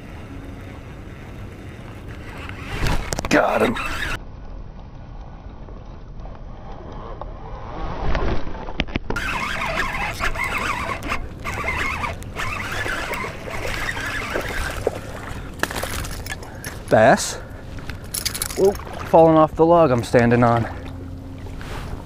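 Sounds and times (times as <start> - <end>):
water splashing and rustling weeds: 8.2 - 22.0.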